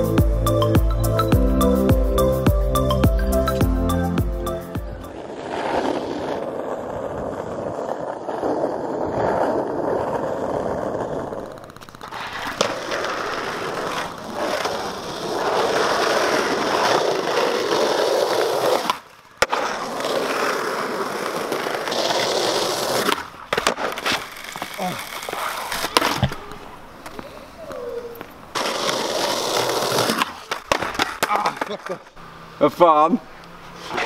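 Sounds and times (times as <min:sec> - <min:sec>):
skateboard wheels rolling on concrete: 0:00.0 - 0:34.0
skateboard clacking on landing: 0:10.7 - 0:27.3, 0:28.2 - 0:32.1.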